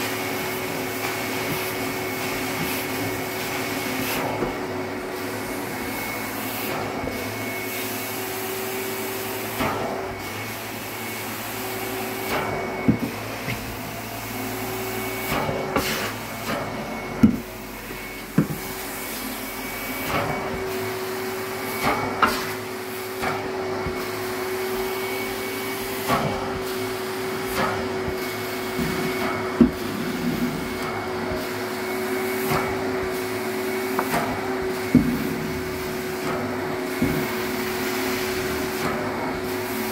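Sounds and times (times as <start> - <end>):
carpet extraction suction whine: 0.0 - 39.9.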